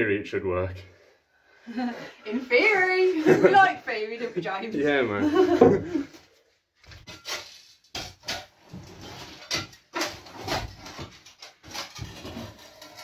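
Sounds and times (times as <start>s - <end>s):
hand tools clunking and scraping: 5.4s - 6.2s, 6.8s - 13.0s.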